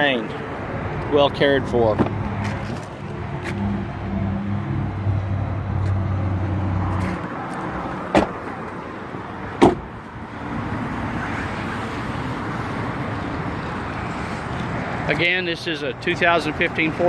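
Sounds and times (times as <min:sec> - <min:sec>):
outdoor background noise: 0:00.0 - 0:17.0
car door closing knock: 0:08.1 - 0:08.4, 0:09.6 - 0:09.9.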